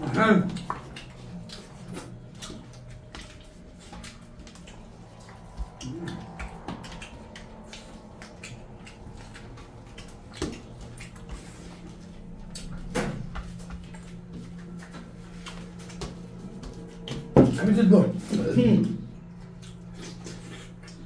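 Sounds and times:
food squished against steel plate: 0.0 - 14.0
chewing and wet mouth clicks: 0.4 - 17.3, 19.2 - 21.0.

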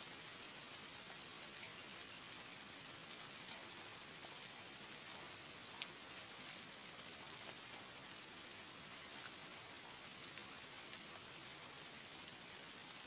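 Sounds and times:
rain falling: 0.0 - 13.0
raindrop ticks: 3.1 - 6.0.

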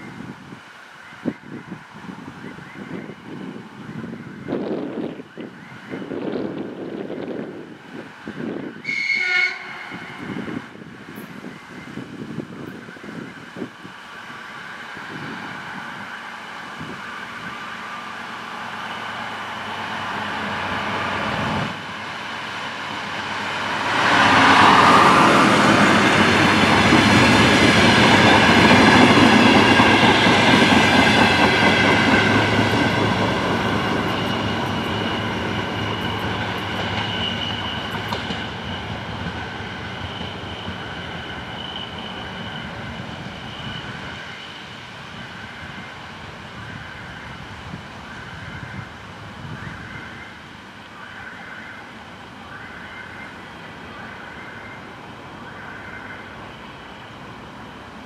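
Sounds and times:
diesel train passing: 1.0 - 58.0
thin high ringing tone: 33.9 - 44.7.

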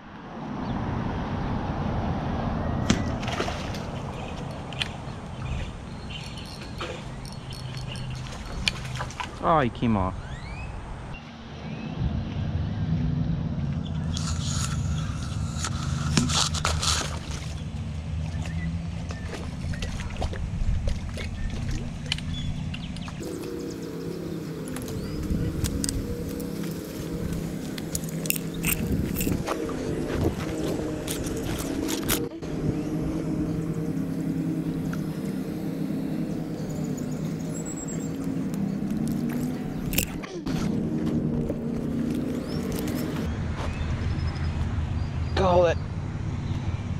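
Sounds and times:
low motor hum: 0.6 - 46.9
reel clicks: 27.8 - 29.4, 39.0 - 40.2.

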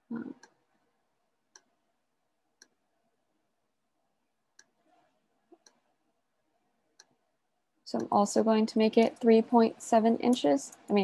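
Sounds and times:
computer mouse clicks: 1.5 - 1.8, 4.6 - 4.8.

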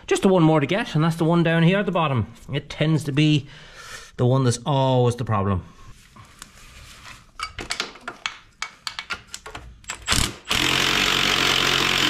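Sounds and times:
cordless power tool running: 10.1 - 12.0.

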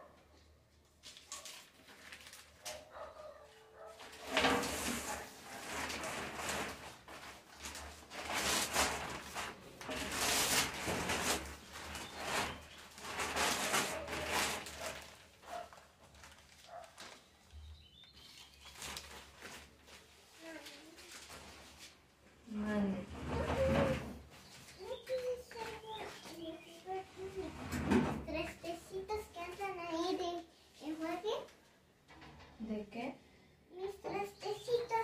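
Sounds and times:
plastic bag crinkling: 1.0 - 3.1, 4.0 - 22.0.

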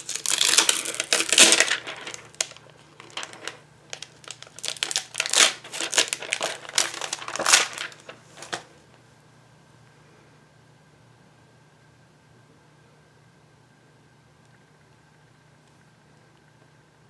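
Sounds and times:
plastic sheet crinkling: 0.0 - 8.7.

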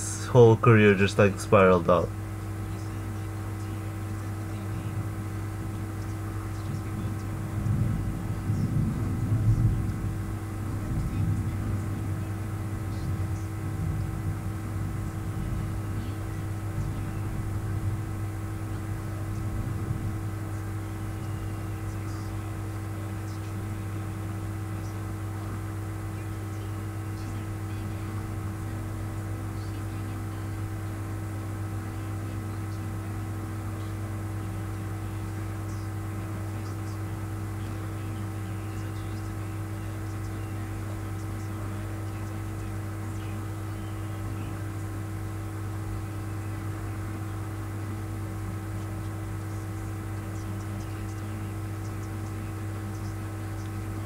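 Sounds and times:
faint speech: 0.0 - 54.0
low hum with held tones: 0.0 - 54.0.

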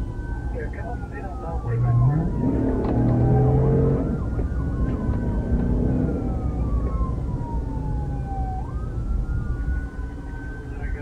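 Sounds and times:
car engine rumble: 0.0 - 11.0
police sirens wailing: 0.0 - 11.0
road noise: 0.0 - 11.0.

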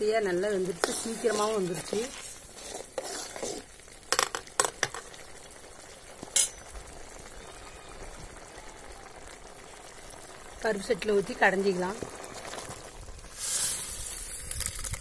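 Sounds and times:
thick stew bubbling: 0.0 - 15.0
metal ladle clinking on pot: 6.3 - 6.7.

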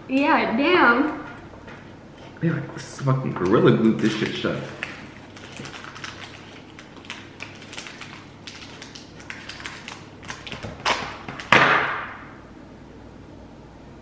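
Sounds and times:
candy wrapper crinkling: 3.4 - 11.5
wrapper ripping open: 3.5 - 11.5.

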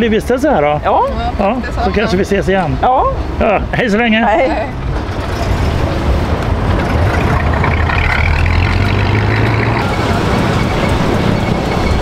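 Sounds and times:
car engine running: 4.5 - 12.0.

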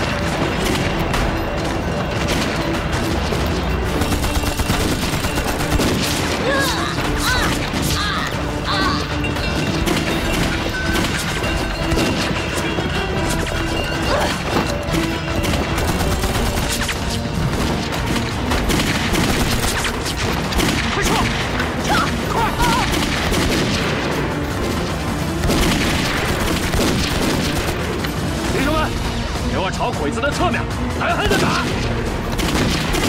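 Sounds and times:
pistol and rifle shots: 0.0 - 6.4, 14.9 - 21.8, 22.9 - 24.8, 25.4 - 28.0, 32.3 - 33.0
background music: 0.0 - 33.0
people shouting: 6.3 - 9.2, 21.0 - 23.1.

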